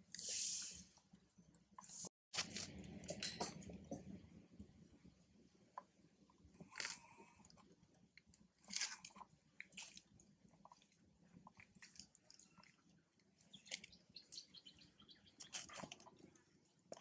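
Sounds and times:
monkey chewing and crunching food: 6.4 - 17.0.

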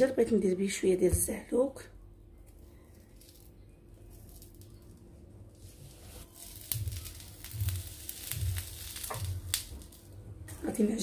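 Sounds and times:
aubergines sizzling on grill plate: 5.5 - 10.2.

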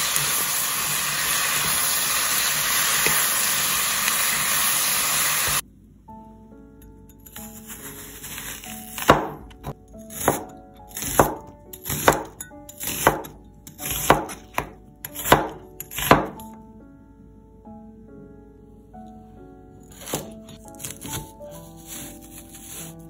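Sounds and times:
light background music: 5.6 - 23.0
cleaver slicing onion: 7.2 - 16.5, 19.9 - 23.0.

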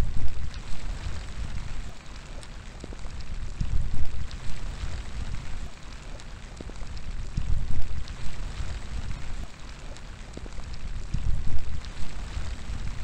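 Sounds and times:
raindrops ticking: 0.0 - 13.0
steady rain falling: 0.0 - 13.0
wind gusts on microphone: 7.1 - 9.4, 10.8 - 13.0.

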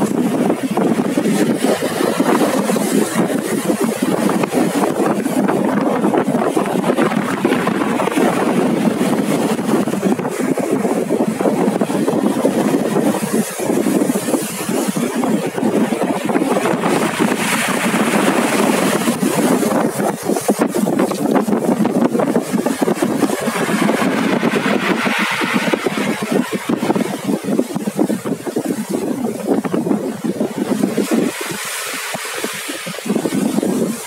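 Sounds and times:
surf washing over pebbles: 0.0 - 34.0
foam hissing: 22.0 - 27.7.

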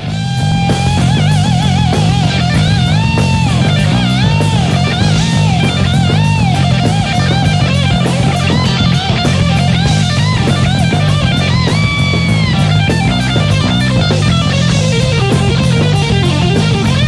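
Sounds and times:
bass and drums: 0.0 - 17.0
electric guitar solo: 0.0 - 17.0.

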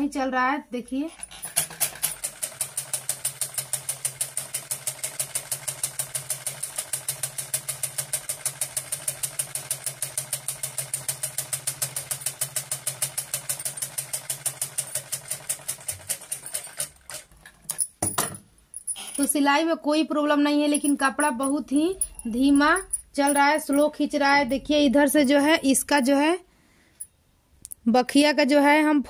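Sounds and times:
sewing machine stitching: 1.2 - 17.6.

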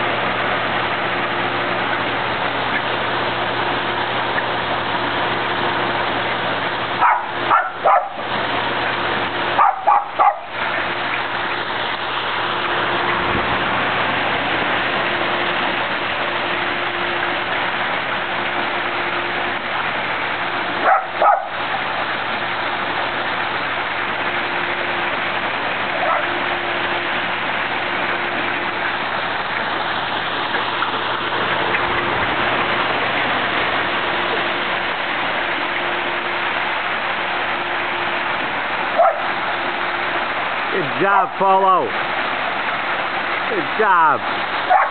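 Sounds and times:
waterfall pouring into pool: 0.0 - 44.9
dog barking in sharp yips: 7.0 - 8.2, 9.6 - 10.5, 20.8 - 21.6, 25.9 - 26.3, 39.0 - 39.3, 44.7 - 44.9.

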